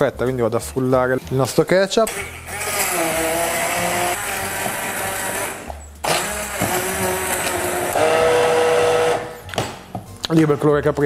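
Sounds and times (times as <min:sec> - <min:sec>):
immersion blender running: 0:02.5 - 0:09.4.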